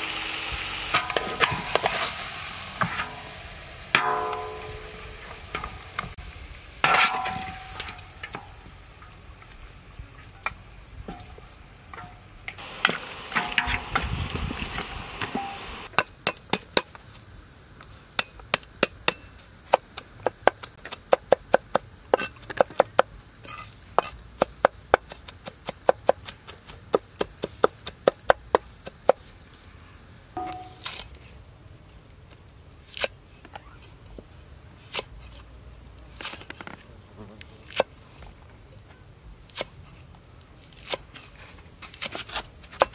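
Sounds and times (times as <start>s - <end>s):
metal spatula scraping a wok: 0.8s - 6.1s, 6.8s - 8.4s.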